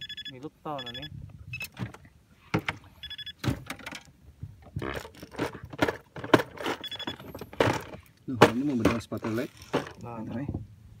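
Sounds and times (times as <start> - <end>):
short electronic beep: 0.0 - 1.7, 3.0 - 3.4, 6.8 - 7.2.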